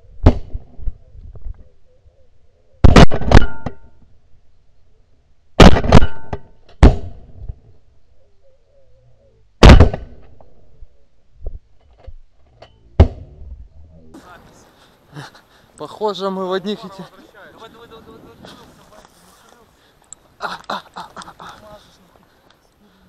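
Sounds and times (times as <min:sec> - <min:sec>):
shotguns firing: 0:02.8 - 0:03.7, 0:05.6 - 0:07.2, 0:09.6 - 0:10.2.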